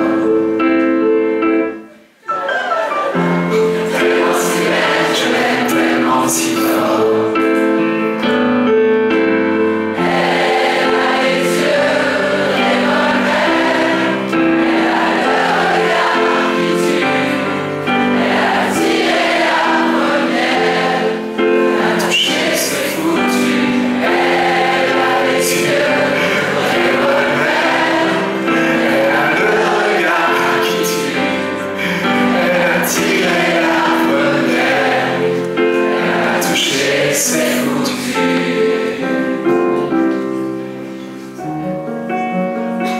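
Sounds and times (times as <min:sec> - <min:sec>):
piano accompaniment: 0:00.0 - 0:42.9
several voices singing pop song: 0:03.8 - 0:07.6, 0:18.2 - 0:39.2.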